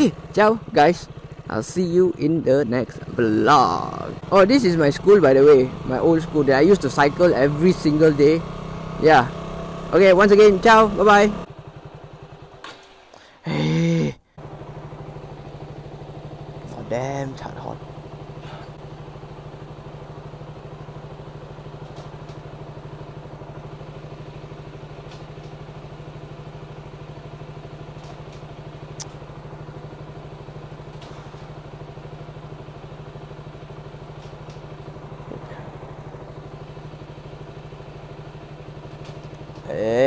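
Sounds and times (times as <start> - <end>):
motorcycle engine idling: 0.0 - 40.0.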